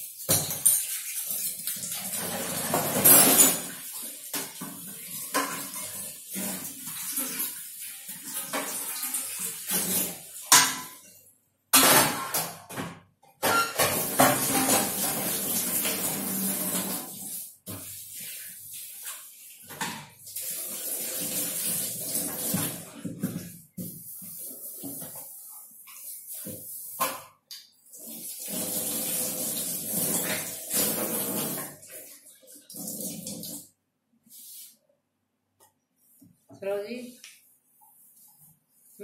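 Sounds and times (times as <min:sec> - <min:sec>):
tap water running into sink: 0:00.0 - 0:10.6, 0:13.8 - 0:33.7
utensils clattering in sink: 0:00.0 - 0:17.9, 0:28.0 - 0:33.6.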